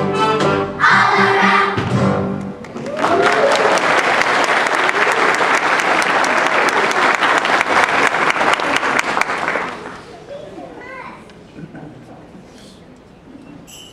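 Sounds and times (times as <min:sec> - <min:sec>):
audience clapping: 0:02.6 - 0:10.1
people cheering: 0:02.7 - 0:10.1.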